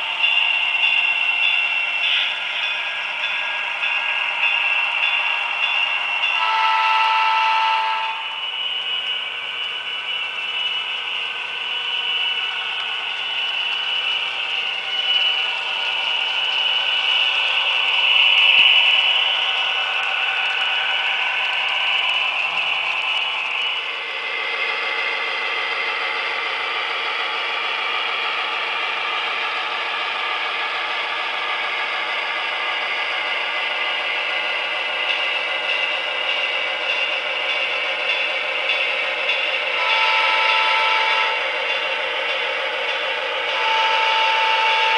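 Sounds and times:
model train whirring and clattering: 0.0s - 44.9s
locomotive horn blast: 6.4s - 8.2s, 39.8s - 41.4s, 43.6s - 44.9s.

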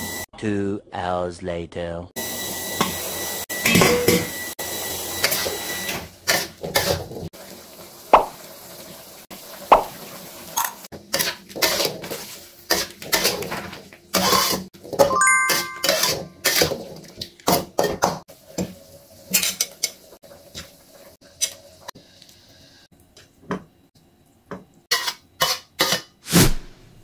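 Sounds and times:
metal spatula scraping a wok: 11.1s - 14.7s, 24.9s - 26.4s.

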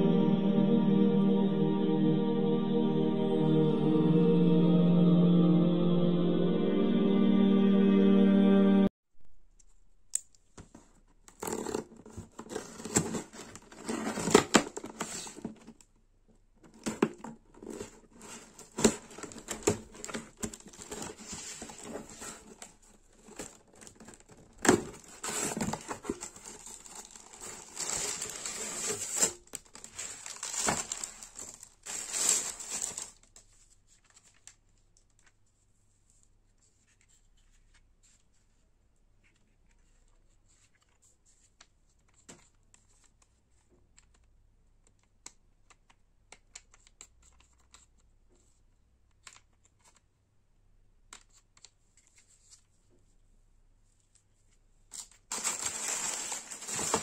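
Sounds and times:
cardboard tearing and crumpling: 11.4s - 15.5s, 17.6s - 33.3s, 55.3s - 57.0s.

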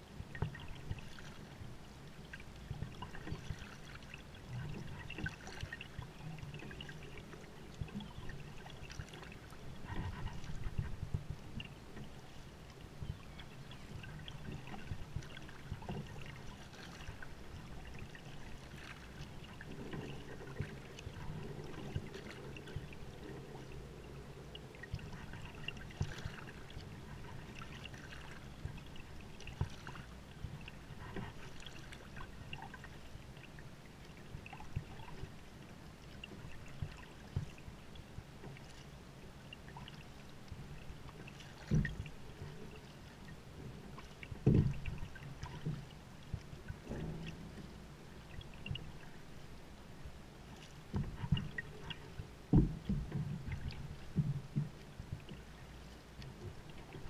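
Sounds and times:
paddle dipping and dripping: 0.0s - 57.0s
water trickling along hull: 0.0s - 57.0s
light splashes: 2.2s - 49.8s
paddle knock: 41.6s - 42.6s, 43.6s - 49.2s, 50.9s - 57.0s.

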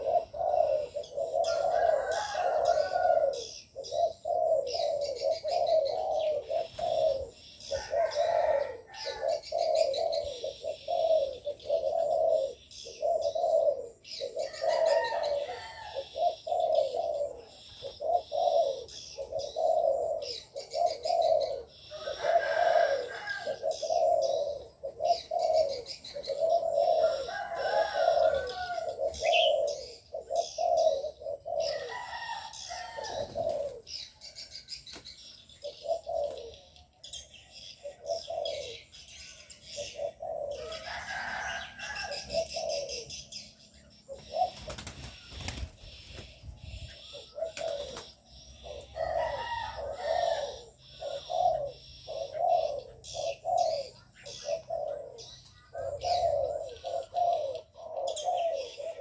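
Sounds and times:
doves cooing: 0.0s - 59.0s
small birds chirping: 0.0s - 59.0s.

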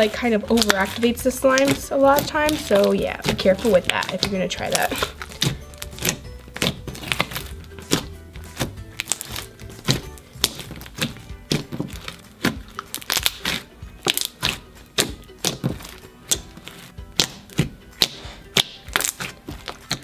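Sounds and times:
background music: 0.0s - 20.0s.

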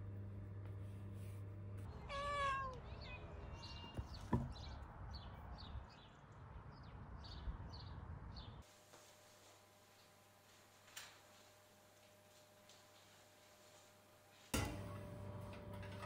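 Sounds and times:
cat meowing: 2.0s - 2.9s
birds chirping: 2.8s - 8.6s.

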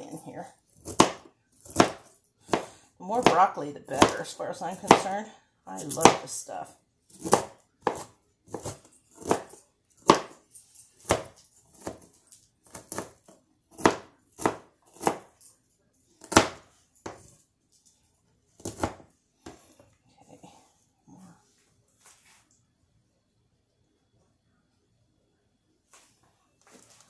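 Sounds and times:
knife chopping on cutting board: 0.8s - 4.2s, 4.8s - 5.1s, 7.1s - 10.4s, 11.0s - 12.1s, 12.7s - 15.3s, 16.2s - 17.2s, 18.6s - 19.6s.

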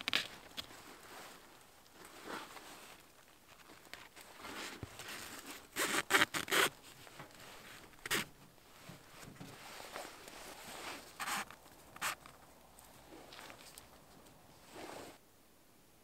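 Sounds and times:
wooden stick scraping tarp: 2.0s - 12.3s, 14.6s - 15.2s.

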